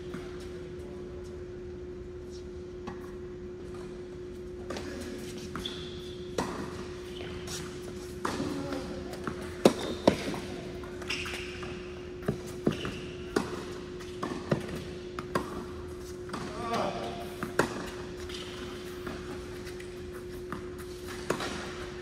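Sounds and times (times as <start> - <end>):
steady hum: 0.0 - 22.0
shoe squeaks: 5.4 - 7.9, 10.9 - 13.4
racket hitting ball: 8.2 - 19.4, 20.4 - 22.0.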